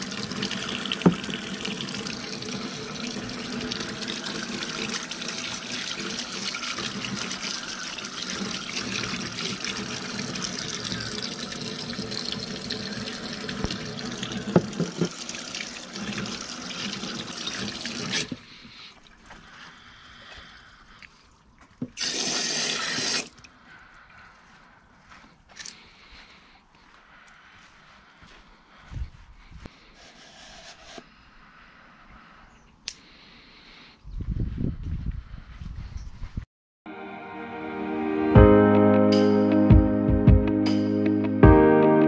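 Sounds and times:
water running: 0.0s - 18.4s, 21.3s - 23.4s.

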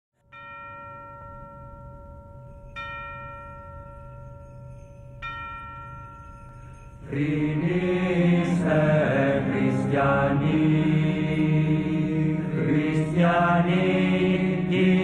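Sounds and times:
bell ringing: 0.2s - 7.5s.

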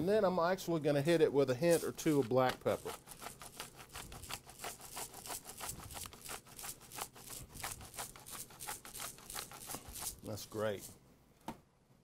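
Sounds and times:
pepper grinder crunching: 1.7s - 10.9s.

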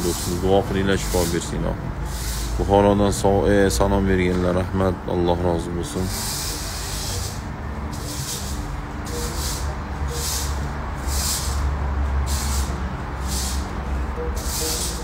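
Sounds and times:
short high-pitched hissing pulses: 0.0s - 0.5s, 2.0s - 2.8s, 6.0s - 15.0s.

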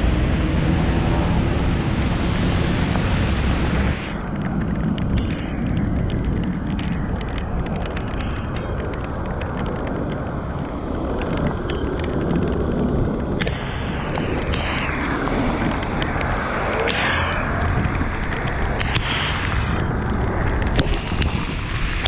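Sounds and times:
wet road hiss: 0.0s - 4.1s, 18.8s - 19.8s, 20.8s - 22.0s
wind on microphone: 0.0s - 22.0s
raindrops ticking on camera: 0.1s - 22.0s.

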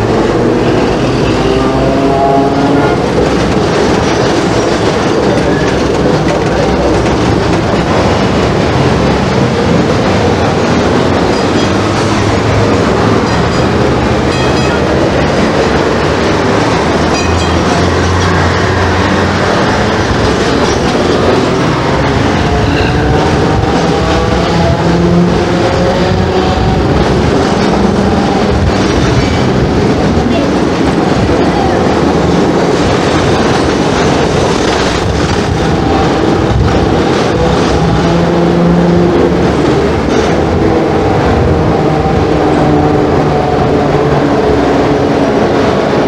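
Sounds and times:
tram wheels rumbling on rails: 0.0s - 46.0s.

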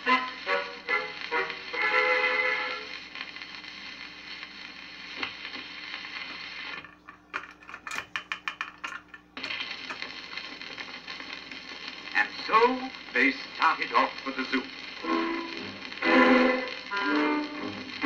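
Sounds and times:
record surface hiss: 0.0s - 18.0s.

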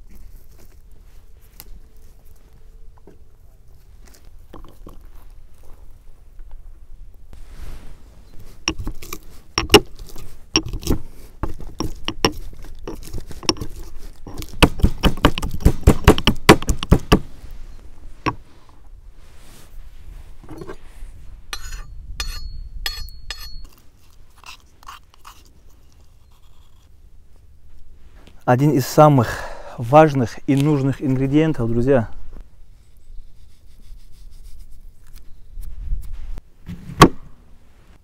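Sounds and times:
pestle pounding in mortar: 10.6s - 17.2s
ringing clinks: 21.6s - 23.8s.

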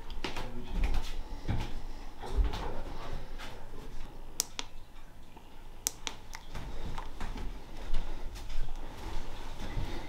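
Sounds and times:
lantern switch clicks: 4.4s - 4.8s, 5.8s - 6.4s.

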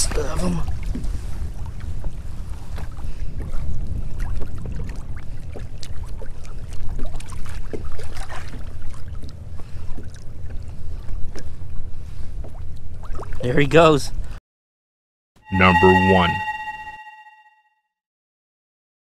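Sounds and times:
water splashing and sloshing: 0.0s - 13.4s.

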